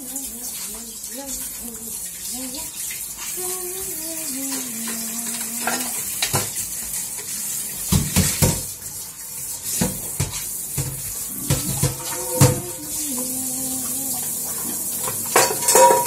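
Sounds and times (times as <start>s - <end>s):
tap water running into sink: 0.0s - 16.0s
dishes clattering in sink: 4.8s - 8.8s, 9.7s - 13.4s, 14.3s - 16.0s.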